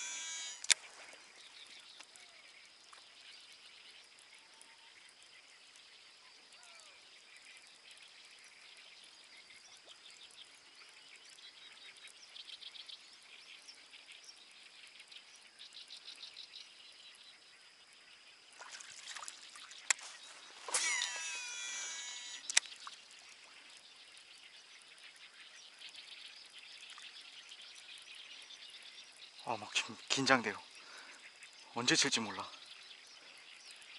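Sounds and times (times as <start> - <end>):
fishing reel clicks: 0.0 - 0.8, 20.7 - 22.8
fishing reel whirring: 0.0 - 0.8, 20.0 - 22.6
frogs calling: 0.0 - 3.1, 18.5 - 33.9
insects calling: 0.0 - 33.9.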